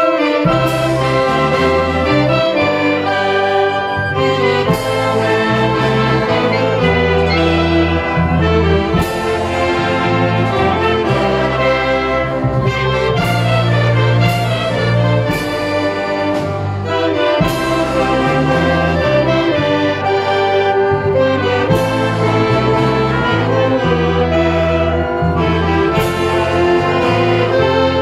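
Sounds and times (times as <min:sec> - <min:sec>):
wind band playing: 0:00.0 - 0:28.0
sharp percussion hits: 0:00.5 - 0:11.7.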